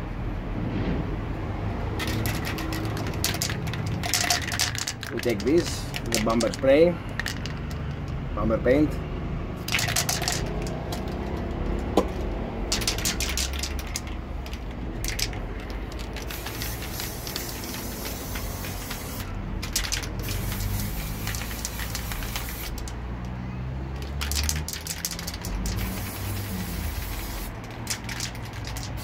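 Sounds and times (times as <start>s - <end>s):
aerosol spray hissing: 16.2s - 19.3s, 20.1s - 22.9s, 25.6s - 28.1s.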